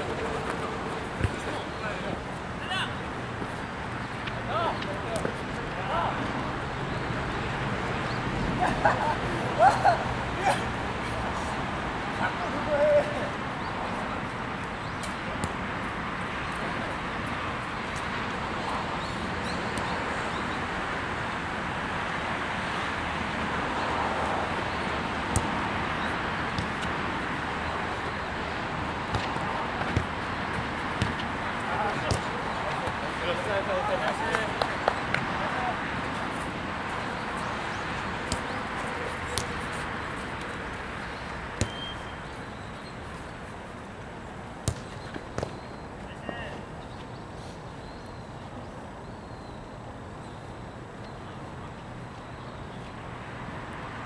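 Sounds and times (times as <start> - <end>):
outdoor background noise: 0.0 - 54.0
ball being kicked: 29.1 - 31.2, 32.0 - 32.3, 44.6 - 45.6
ball kicked thuds: 32.0 - 32.3, 44.6 - 45.6.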